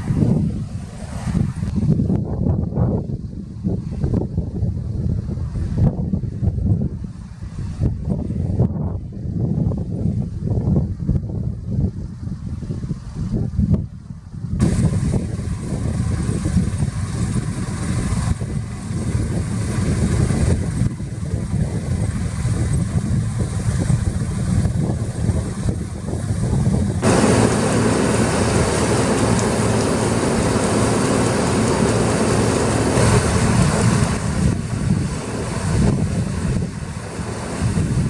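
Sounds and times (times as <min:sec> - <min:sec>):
combine harvester droning: 0:26.9 - 0:38.0
loud rushing noise: 0:27.0 - 0:38.0.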